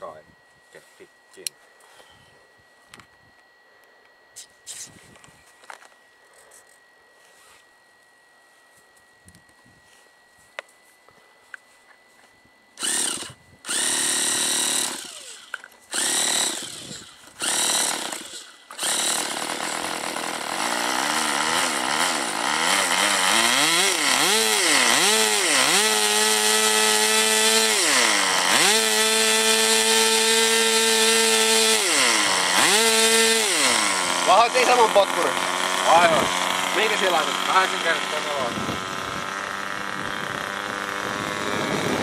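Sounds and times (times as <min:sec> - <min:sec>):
electric starter cranking: 0:12.8 - 0:42.0
model airplane engine revving: 0:12.8 - 0:42.0.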